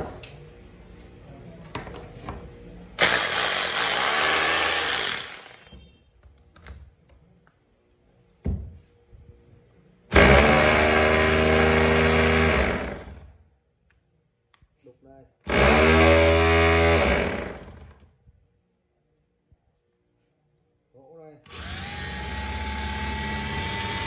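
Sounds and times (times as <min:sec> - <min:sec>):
electric drill running: 0:03.0 - 0:05.6, 0:10.2 - 0:13.2, 0:15.5 - 0:17.8, 0:21.5 - 0:24.0.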